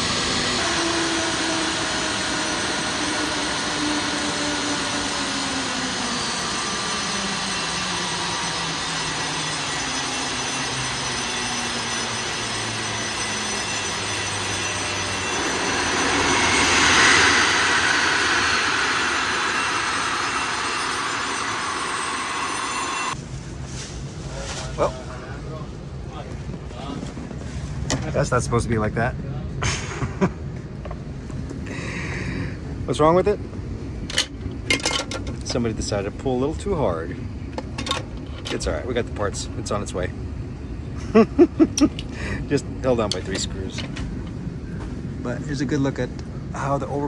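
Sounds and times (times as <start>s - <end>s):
jet engine winding down: 0.0s - 23.2s, 29.6s - 47.0s
jet roar: 0.0s - 23.2s
rush of noise: 12.5s - 23.2s.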